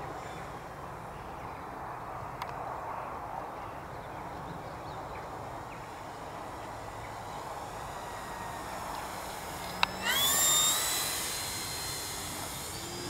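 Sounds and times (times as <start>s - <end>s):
distant rc plane motor whirring: 5.2s - 13.0s.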